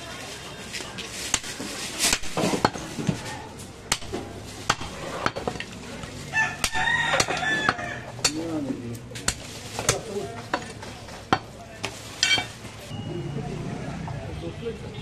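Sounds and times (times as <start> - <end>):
cleaver chopping meat on wood: 3.9 - 5.5, 6.6 - 8.6, 9.2 - 10.7.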